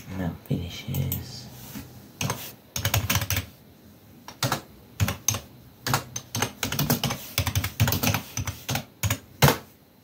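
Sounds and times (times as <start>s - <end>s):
computer keyboard clicking: 2.2s - 3.5s, 4.3s - 9.6s.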